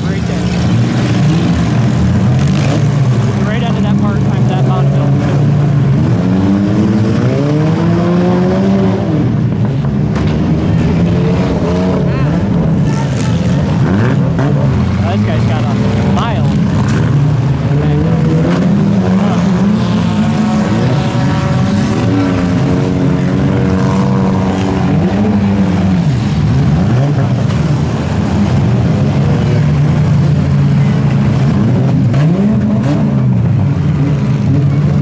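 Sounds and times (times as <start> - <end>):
car engines revving hard: 0.0 - 35.0.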